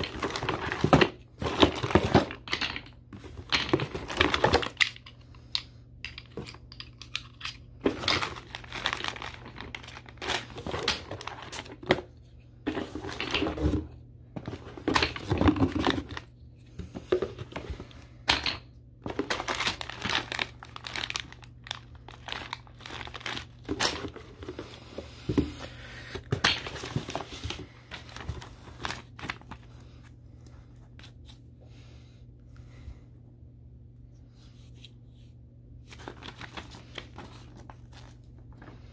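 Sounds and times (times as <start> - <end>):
plastic bags crinkling: 7.2 - 11.6, 19.1 - 23.7.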